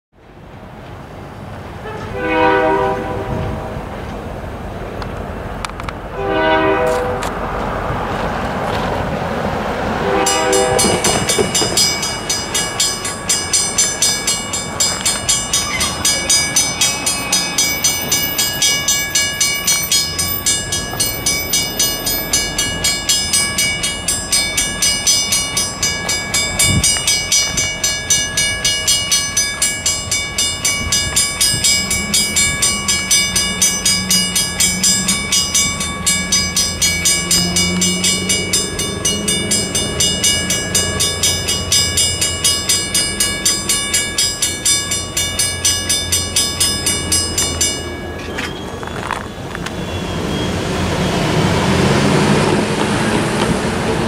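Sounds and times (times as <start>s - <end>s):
train horn: 1.8s - 3.8s, 6.1s - 7.4s, 10.0s - 11.3s
crossing bell ringing: 9.8s - 54.0s.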